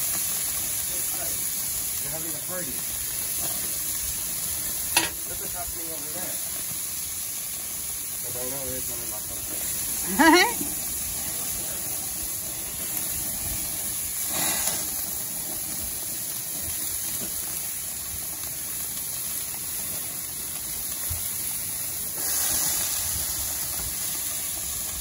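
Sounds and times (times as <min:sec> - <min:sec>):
meat sizzling on grill: 0:00.0 - 0:25.0.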